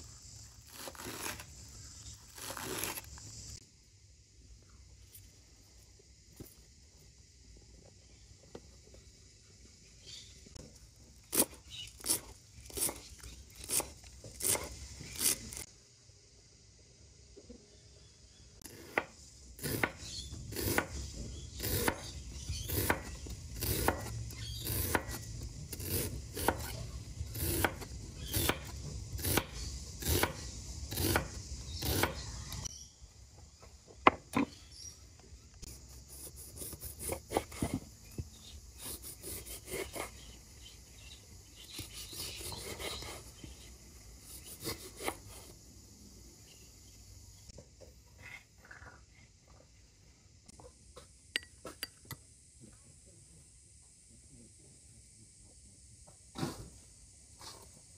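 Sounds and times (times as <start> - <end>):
knife slicing onion on board: 18.6 - 32.3, 36.1 - 37.8.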